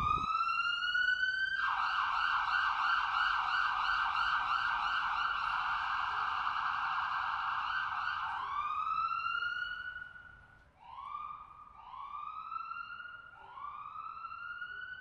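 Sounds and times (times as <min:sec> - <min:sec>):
siren warbling and wailing: 0:00.0 - 0:00.6.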